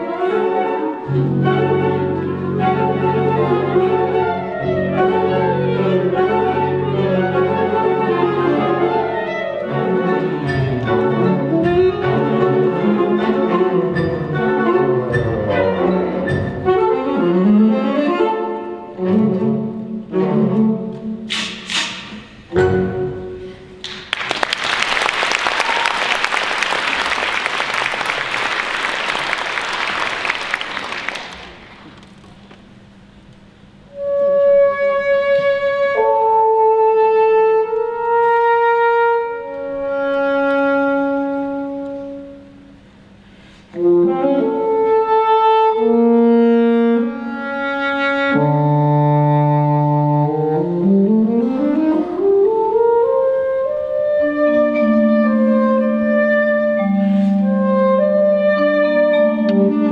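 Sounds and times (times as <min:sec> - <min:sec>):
jazz band with saxophone solo: 0:33.9 - 0:42.7, 0:43.7 - 0:59.9.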